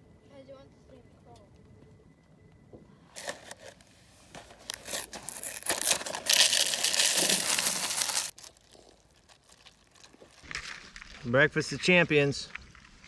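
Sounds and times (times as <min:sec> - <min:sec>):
cereal box and plastic bag crinkling: 0:03.2 - 0:11.3
cereal pouring into paper bowl: 0:04.9 - 0:10.4.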